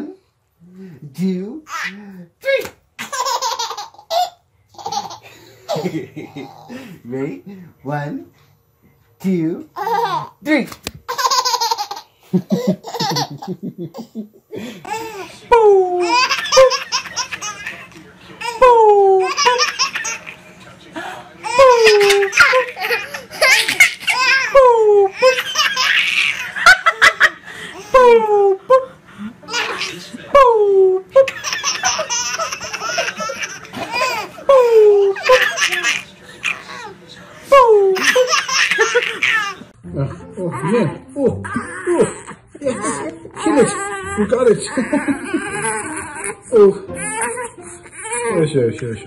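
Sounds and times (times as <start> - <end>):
baby laughing and squealing: 3.0 - 5.8, 14.9 - 20.4, 21.4 - 28.4, 31.2 - 36.9, 37.9 - 39.6.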